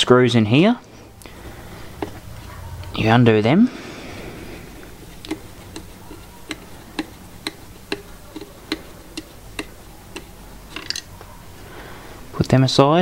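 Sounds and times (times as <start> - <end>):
screwdriver clicking: 5.0 - 11.0.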